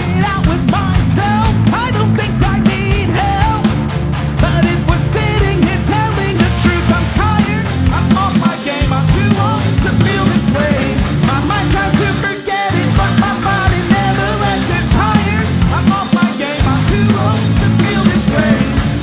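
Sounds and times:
drum kit: 0:00.0 - 0:19.0
electric bass: 0:00.0 - 0:19.0
electric guitar: 0:00.0 - 0:19.0.

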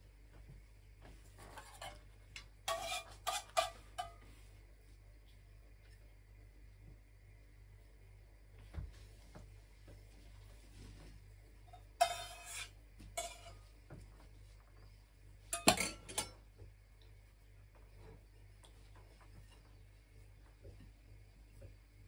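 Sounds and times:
utensils clinking and scraping bowl: 0:01.4 - 0:04.4, 0:11.7 - 0:13.7, 0:15.5 - 0:16.5.

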